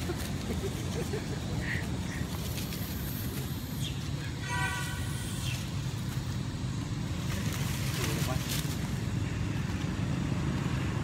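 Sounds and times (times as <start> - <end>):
road traffic rumble: 0.0 - 11.0
vehicle horn toot: 4.4 - 5.6.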